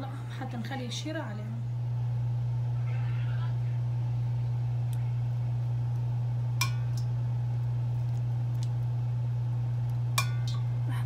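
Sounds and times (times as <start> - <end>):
steady low hum: 0.0 - 11.0
metal ladle clinking: 10.2 - 10.6.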